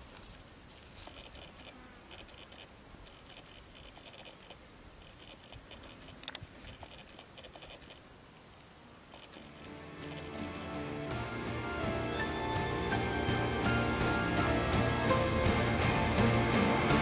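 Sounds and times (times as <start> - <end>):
monkeys scratching and rustling: 0.0 - 8.1, 9.0 - 10.8
music: 9.6 - 17.0.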